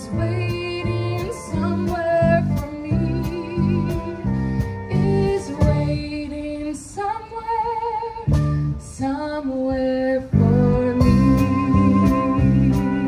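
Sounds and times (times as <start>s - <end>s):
live band guitar and drums: 0.0s - 6.1s, 8.2s - 9.0s, 10.3s - 13.0s
woman singing with vibrato: 0.0s - 13.0s.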